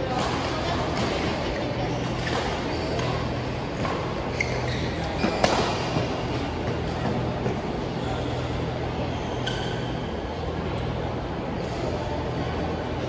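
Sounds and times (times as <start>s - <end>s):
steady low hum: 0.0s - 13.0s
shoe squeak on court: 4.0s - 6.0s
racket hitting shuttlecock: 5.2s - 6.1s.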